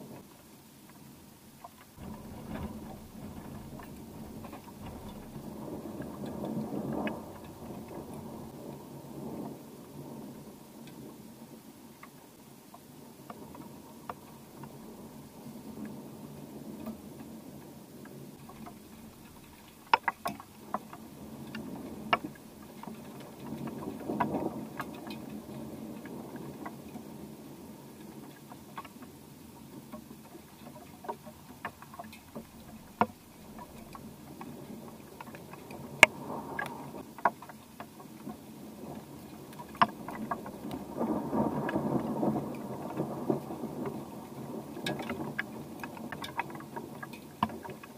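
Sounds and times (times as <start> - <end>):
distant thunder rumbling: 2.0 - 10.5, 18.3 - 27.4, 32.2 - 37.0, 38.7 - 45.8.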